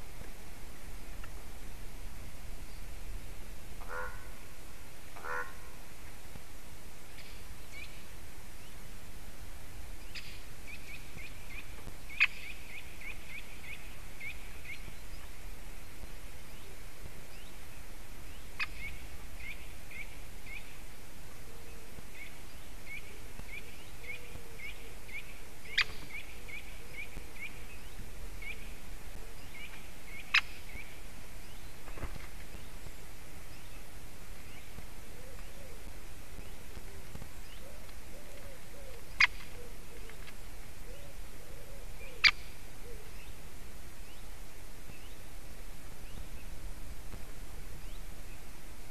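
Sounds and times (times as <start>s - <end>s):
outdoor hiss: 0.0s - 48.9s
woodpecker sharp calls: 3.8s - 4.5s, 5.2s - 5.8s, 22.2s - 31.8s, 34.4s - 43.2s.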